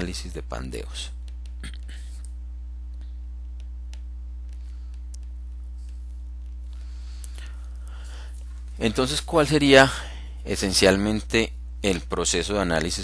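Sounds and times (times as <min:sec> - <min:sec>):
low electrical hum: 0:00.0 - 0:13.0
stylus tapping on screen: 0:01.2 - 0:06.8.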